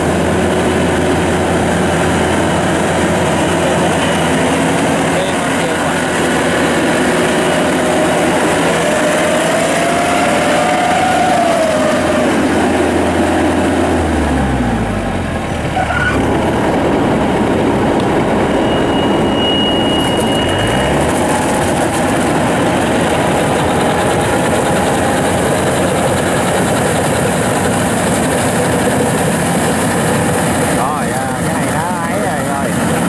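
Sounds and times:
combine harvester running: 0:00.0 - 0:33.0.

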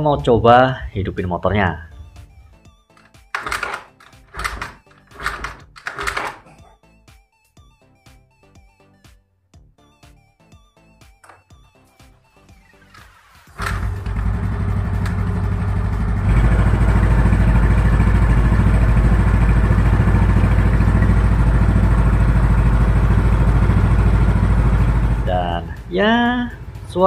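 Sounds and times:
scooter engine starting and idling: 0:01.9 - 0:06.7, 0:12.5 - 0:27.0.

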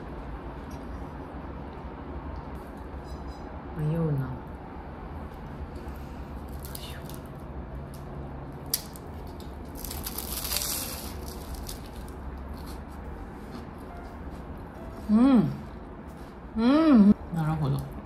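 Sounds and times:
steady low hum: 0:00.0 - 0:18.0
pastry crust crunching: 0:05.4 - 0:13.9.

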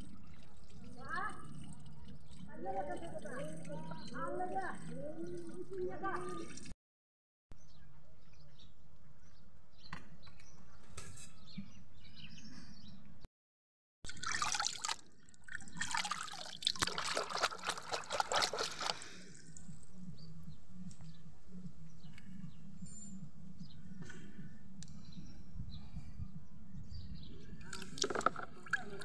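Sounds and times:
water dripping: 0:00.0 - 0:06.7, 0:14.1 - 0:19.8, 0:27.6 - 0:29.0
water splashing in a tub: 0:00.0 - 0:06.7, 0:14.1 - 0:19.6, 0:27.7 - 0:29.0.

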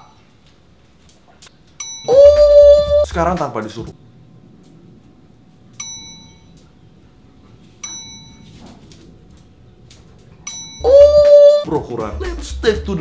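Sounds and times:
bell-like metallic dings: 0:01.8 - 0:02.7, 0:05.8 - 0:06.6, 0:07.8 - 0:08.5, 0:10.4 - 0:11.0.

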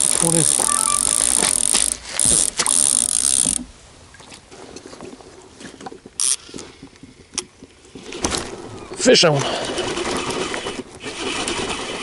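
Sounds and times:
faint reel handling clicks: 0:00.0 - 0:03.6
fishing reel clicker buzzing: 0:00.0 - 0:03.7, 0:06.2 - 0:06.4.

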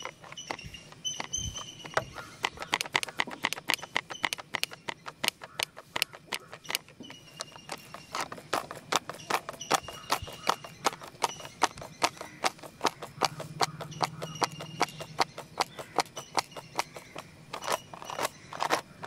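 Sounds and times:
pencil box contents rattling: 0:00.0 - 0:19.0.

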